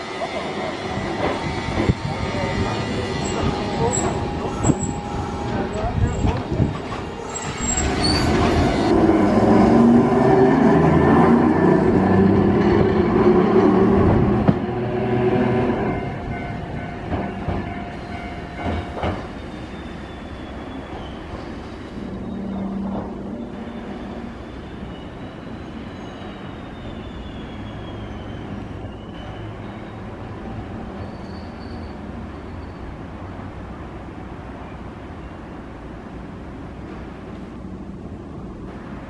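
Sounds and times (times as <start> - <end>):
tram running on street track: 0.0 - 39.0
high wheel squeal: 2.6 - 6.3, 7.1 - 8.9, 19.2 - 33.0.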